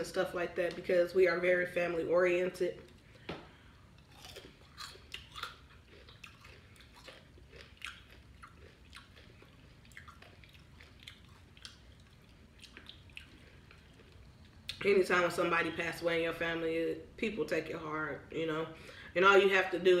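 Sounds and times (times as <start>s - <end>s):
person chewing food: 2.8s - 14.8s.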